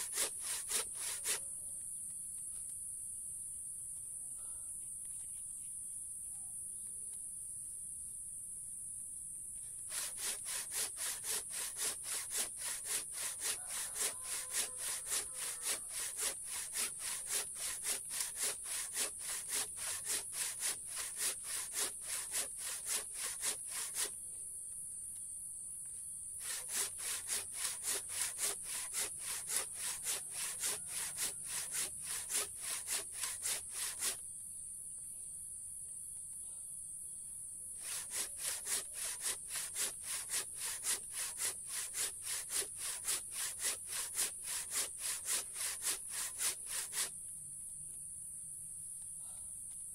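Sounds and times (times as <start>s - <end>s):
handsaw cutting wood: 0.0s - 1.4s, 9.8s - 24.2s, 26.4s - 34.2s, 37.8s - 47.1s.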